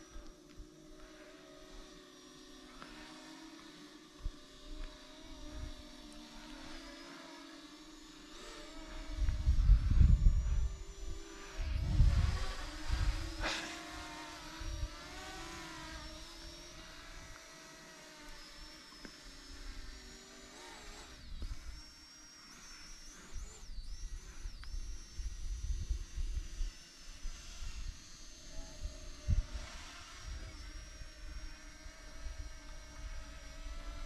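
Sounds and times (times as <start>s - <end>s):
electric propeller motors whining: 0.0s - 34.0s
wind buffeting microphone: 8.9s - 13.4s.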